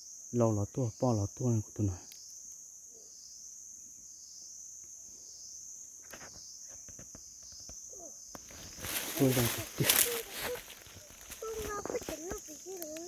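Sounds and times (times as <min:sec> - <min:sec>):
insects chirring: 0:00.0 - 0:13.0
rustles in dry leaves: 0:08.3 - 0:13.0.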